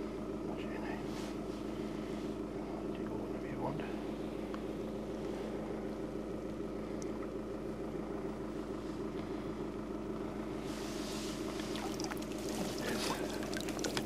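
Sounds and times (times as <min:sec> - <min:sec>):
low hum: 0:00.0 - 0:14.0
water splash: 0:11.7 - 0:14.0.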